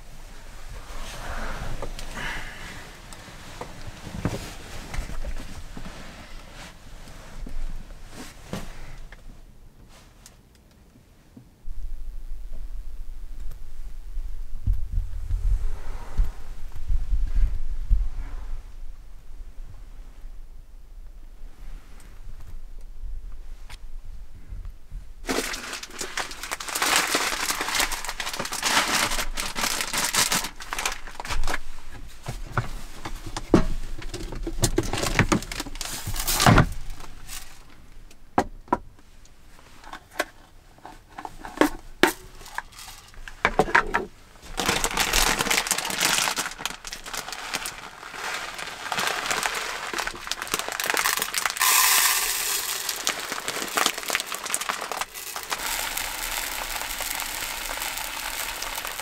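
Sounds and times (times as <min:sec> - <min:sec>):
plastic packaging crinkling: 0:25.2 - 0:31.8, 0:34.0 - 0:37.8, 0:44.5 - 0:59.0
contents pouring into plastic cup: 0:25.3 - 0:31.0, 0:44.6 - 0:59.0.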